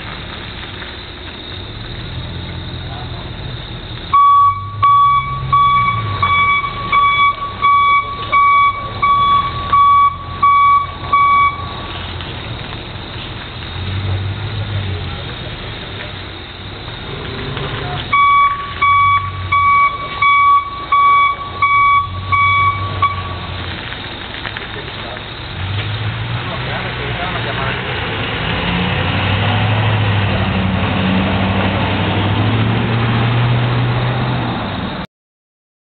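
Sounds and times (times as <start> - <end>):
truck engine running: 0.0 - 35.0
electronic alarm beeping: 4.1 - 11.8, 18.1 - 23.4.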